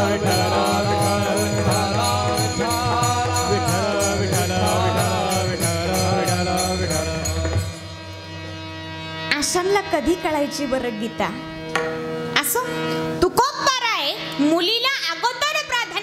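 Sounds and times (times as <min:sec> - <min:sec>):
people chanting into microphones: 0:00.0 - 0:07.8
held accompanying notes: 0:00.0 - 0:13.2.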